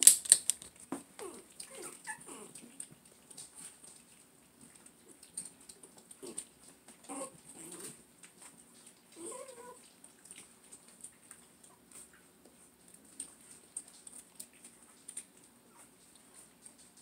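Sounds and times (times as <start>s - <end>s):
puppies whining and squeaking: 1.2s - 2.7s, 7.0s - 7.9s, 9.2s - 9.9s.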